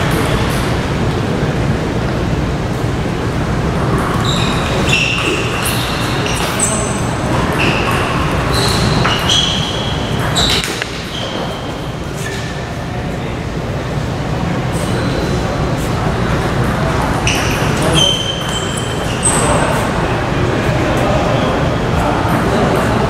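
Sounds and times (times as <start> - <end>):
short high-pitched squeaks: 17.2 - 19.9.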